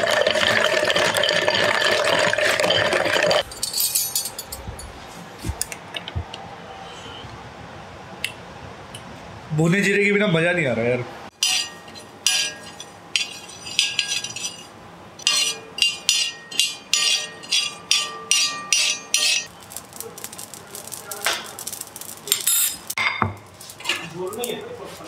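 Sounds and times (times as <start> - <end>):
metal spoon scraping iron pan: 11.4 - 19.5.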